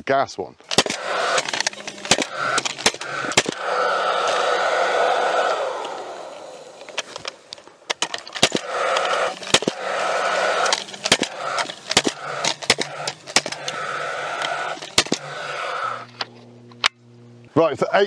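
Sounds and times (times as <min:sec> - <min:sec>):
staple gun firing: 0:00.7 - 0:03.7, 0:07.9 - 0:09.9, 0:10.6 - 0:13.8, 0:14.4 - 0:15.2.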